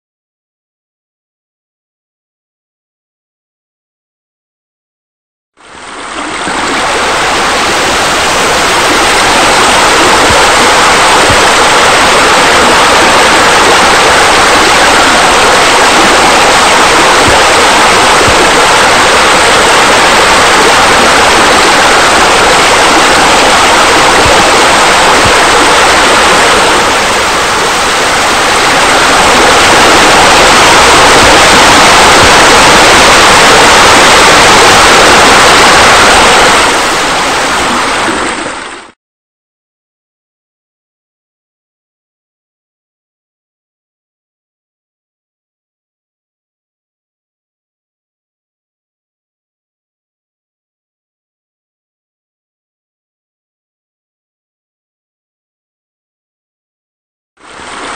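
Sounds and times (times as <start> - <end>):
falling water rushing: 5.6 - 39.0, 57.4 - 57.9.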